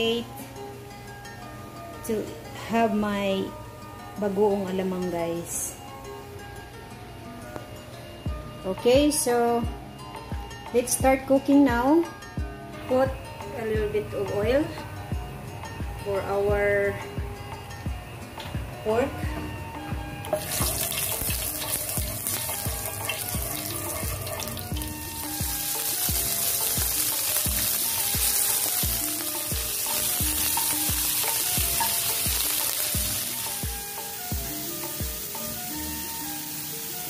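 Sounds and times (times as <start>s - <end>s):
background music with steady beat: 0.0s - 37.0s
meat sizzling in hot oil: 20.2s - 37.0s.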